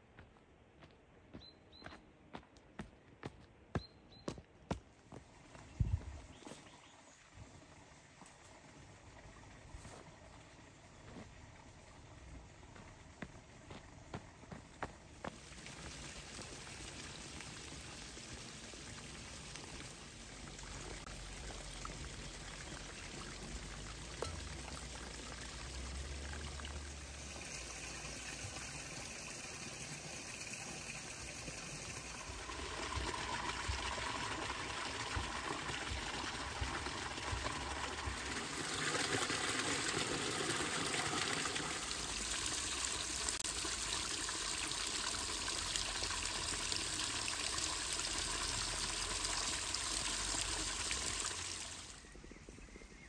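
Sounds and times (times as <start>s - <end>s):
water pouring and splashing on rocks: 15.2s - 52.1s.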